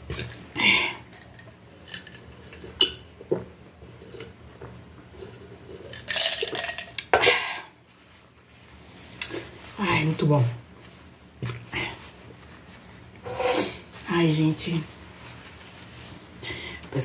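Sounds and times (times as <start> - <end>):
glass set on wooden table: 13.3 - 13.7.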